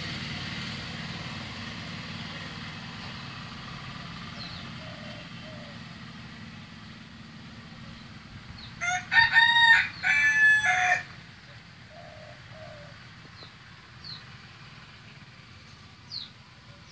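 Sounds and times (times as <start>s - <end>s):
rooster crowing: 8.8s - 11.2s.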